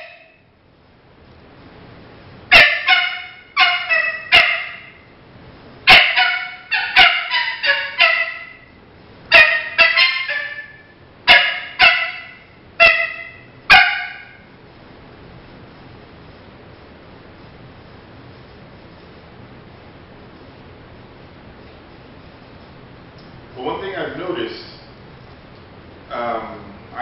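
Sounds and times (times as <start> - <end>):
coyote barks from predator call: 9.4 - 14.4.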